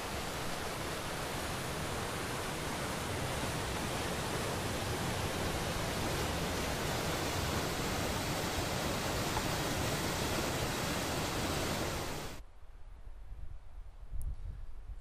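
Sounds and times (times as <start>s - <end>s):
waterfall rushing: 0.0s - 12.4s.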